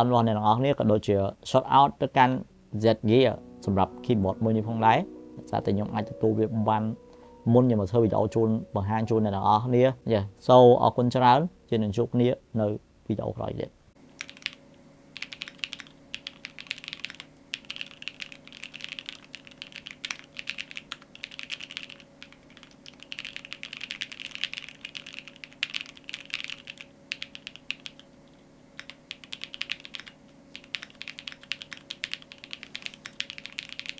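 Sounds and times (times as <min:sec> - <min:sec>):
faint steady hum: 0:00.0 - 0:33.9
mechanical keyboard typing: 0:14.2 - 0:28.1, 0:28.8 - 0:33.9.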